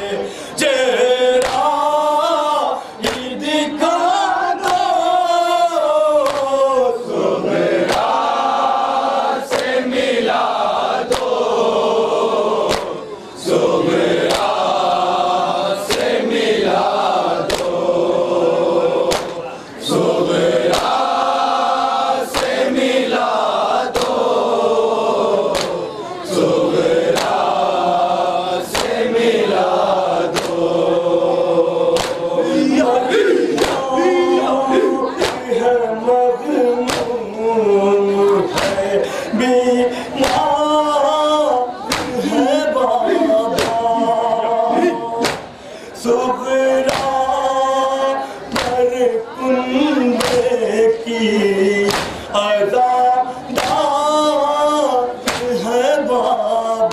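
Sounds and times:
man singing lament into microphone: 0:00.0 - 0:07.1, 0:30.6 - 0:56.9
men chanting in unison: 0:00.0 - 0:56.9
hands slapping chests: 0:01.4 - 0:01.7, 0:03.0 - 0:03.3, 0:04.6 - 0:04.9, 0:06.2 - 0:06.6, 0:07.8 - 0:08.2, 0:09.5 - 0:09.8, 0:11.1 - 0:11.5, 0:12.6 - 0:13.0, 0:14.2 - 0:14.8, 0:15.8 - 0:16.2, 0:17.4 - 0:17.8, 0:19.1 - 0:19.4, 0:20.7 - 0:21.1, 0:22.3 - 0:22.7, 0:23.9 - 0:24.4, 0:25.5 - 0:25.8, 0:27.1 - 0:27.6, 0:28.6 - 0:29.1, 0:30.3 - 0:30.8, 0:31.9 - 0:32.3, 0:33.5 - 0:33.9, 0:35.1 - 0:35.5, 0:36.9 - 0:37.2, 0:38.5 - 0:38.9, 0:40.2 - 0:40.5, 0:41.9 - 0:42.2, 0:43.6 - 0:43.8, 0:45.2 - 0:45.6, 0:46.9 - 0:47.2, 0:48.5 - 0:48.8, 0:50.2 - 0:50.5, 0:51.9 - 0:52.3, 0:53.5 - 0:53.8, 0:55.2 - 0:55.5.

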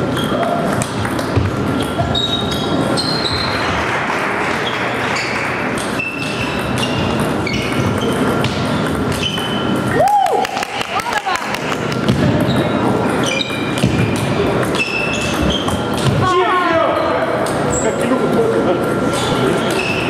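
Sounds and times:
table tennis balls clicking: 0:00.0 - 0:16.0
hubbub of sports hall: 0:00.0 - 0:20.0.

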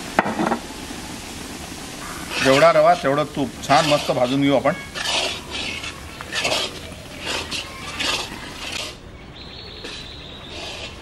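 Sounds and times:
metal spatula scraping iron pan: 0:02.3 - 0:09.0, 0:09.8 - 0:11.0.

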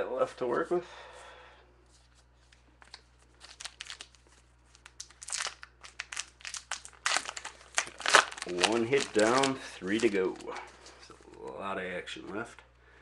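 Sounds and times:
card pack wrapper crinkling: 0:02.8 - 0:11.6.

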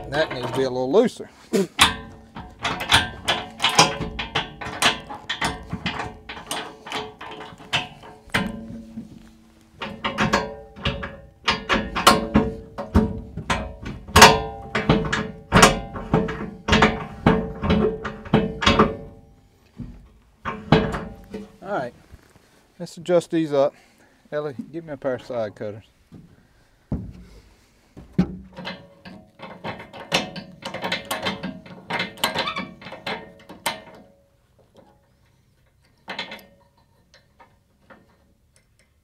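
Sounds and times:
metal latch handles clanking: 0:00.0 - 0:00.9, 0:01.7 - 0:21.6, 0:28.2 - 0:35.0, 0:35.6 - 0:39.0.

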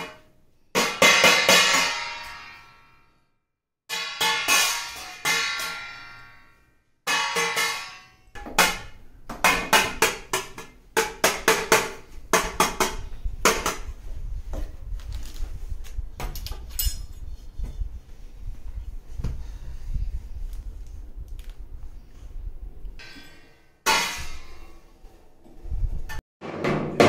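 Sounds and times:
steel plate clanging: 0:03.9 - 0:10.0, 0:23.0 - 0:25.0.

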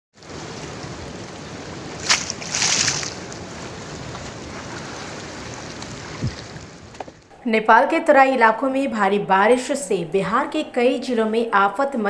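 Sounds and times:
floodwater rushing: 0:00.2 - 0:07.3.

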